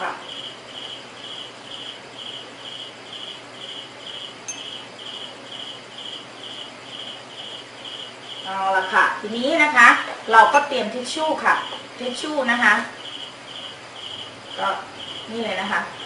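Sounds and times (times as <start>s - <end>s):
cricket chirping: 0.0s - 9.2s, 11.2s - 16.0s.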